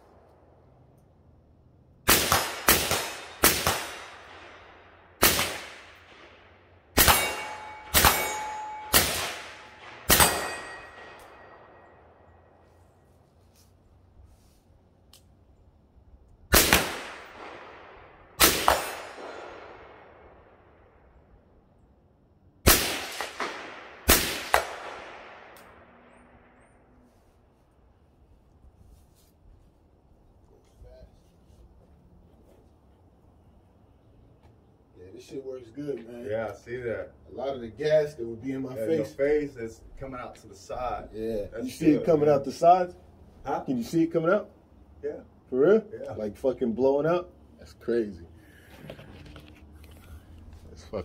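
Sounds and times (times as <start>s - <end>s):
echoing pistol shots: 2.0s - 12.2s, 16.5s - 21.0s, 22.6s - 26.6s
metallic ring of steel target: 7.0s - 12.6s.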